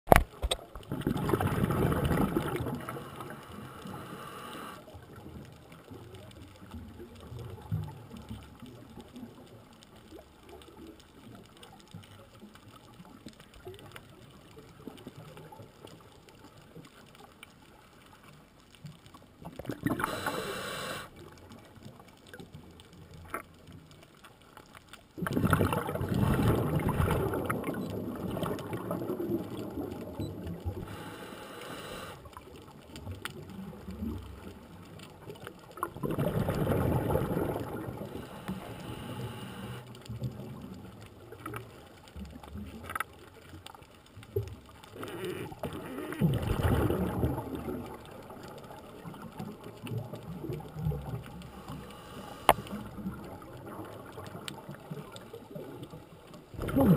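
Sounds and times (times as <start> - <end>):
exhaled bubbles underwater: 0.7 - 17.0, 19.1 - 22.7, 25.2 - 56.9
regulator inhalation hiss: 3.0 - 4.8, 20.0 - 21.1, 30.8 - 32.3, 38.2 - 39.9, 51.6 - 52.7.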